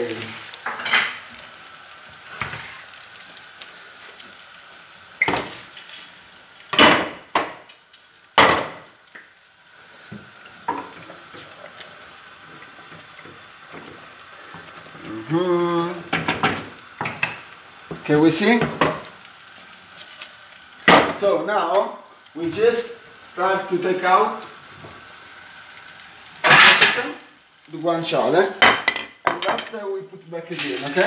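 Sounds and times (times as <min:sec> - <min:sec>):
meat sizzling in a frying pan: 0:00.0 - 0:31.0
metal cookware clanking: 0:26.4 - 0:27.1.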